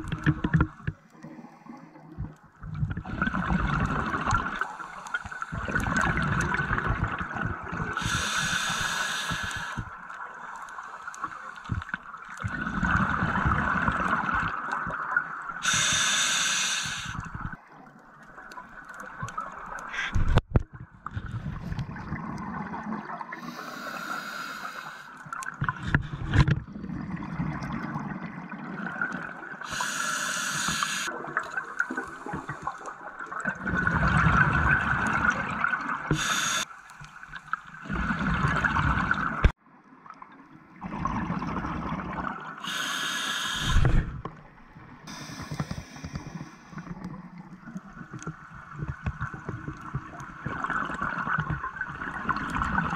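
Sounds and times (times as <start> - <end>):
regulator hissing inhalations: 8.0 - 9.9, 15.6 - 17.3, 23.4 - 25.2, 29.7 - 31.1, 36.1 - 36.7, 42.6 - 44.0, 45.1 - 46.8.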